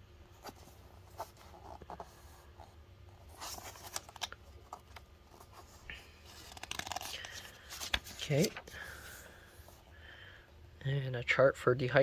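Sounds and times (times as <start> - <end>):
paper pages rustling: 0.3 - 9.5.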